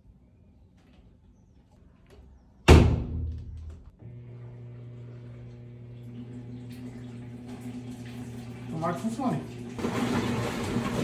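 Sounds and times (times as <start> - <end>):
washing machine humming: 3.6 - 11.0.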